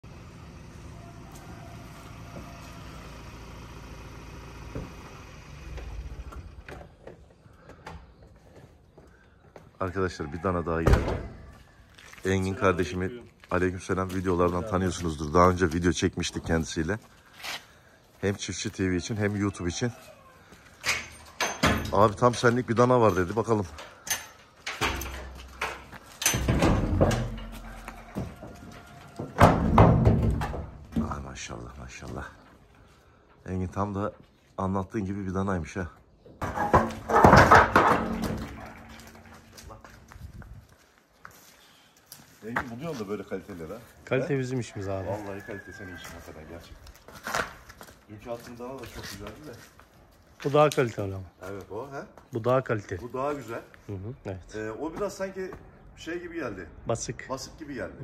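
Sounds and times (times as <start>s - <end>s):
truck engine idling: 0.0s - 7.0s
low engine rumble: 0.0s - 7.8s
hooves on metal floor: 20.8s - 32.4s, 36.4s - 40.9s
steel truck door opening: 24.7s - 27.7s, 36.4s - 39.5s.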